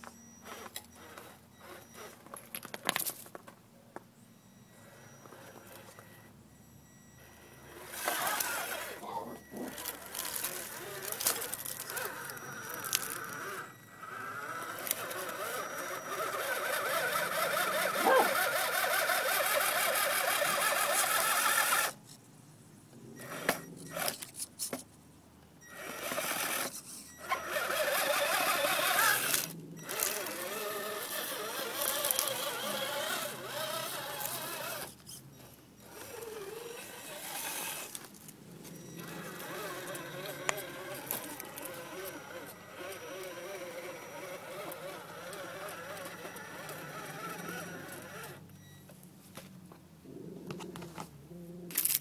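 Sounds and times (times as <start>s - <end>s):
electric motor and gears whining: 0.0s - 3.1s, 6.8s - 22.0s, 25.6s - 48.5s.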